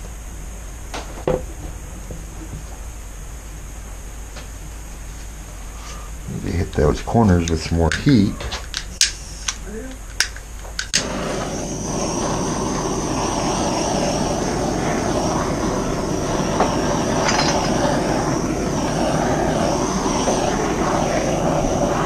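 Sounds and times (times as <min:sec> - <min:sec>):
torch flame hissing: 0:00.0 - 0:22.0
torch igniter clicking: 0:07.4 - 0:22.0.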